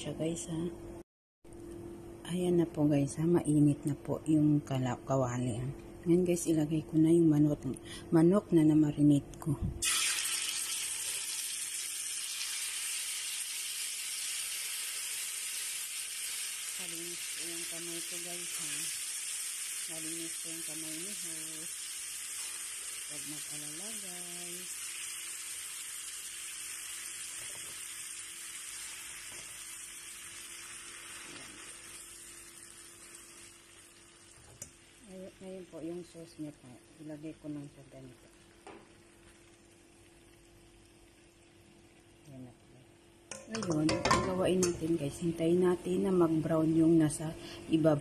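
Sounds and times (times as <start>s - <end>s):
chicken sizzling in oil: 9.8s - 35.2s.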